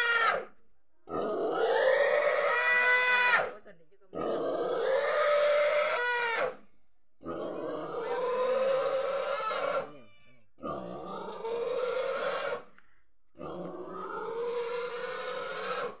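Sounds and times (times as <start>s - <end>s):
pig squealing: 0.0s - 0.5s, 1.4s - 3.6s, 4.2s - 6.6s, 7.3s - 12.7s, 13.4s - 16.0s.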